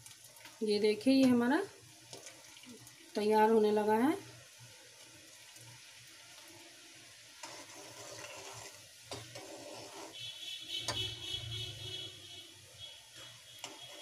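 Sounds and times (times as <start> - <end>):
syrup bubbling and hissing: 1.7 - 3.2, 4.1 - 10.6.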